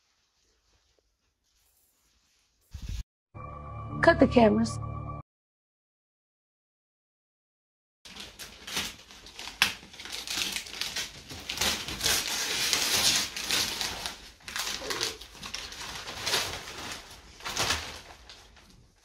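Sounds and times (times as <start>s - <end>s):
wrapping paper crinkling and tearing: 8.1s - 19.0s.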